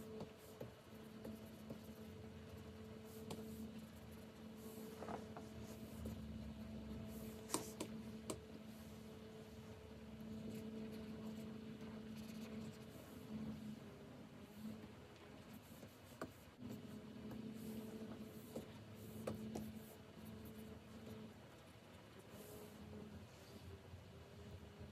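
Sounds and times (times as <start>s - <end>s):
steady low hum: 0.0s - 24.9s
pen scratching on screen: 7.0s - 8.4s, 10.4s - 13.4s
pen tapping on screen: 7.5s - 8.4s.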